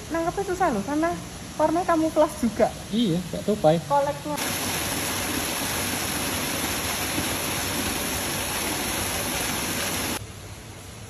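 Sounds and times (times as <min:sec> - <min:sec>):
flowing water rushing: 0:04.0 - 0:10.2.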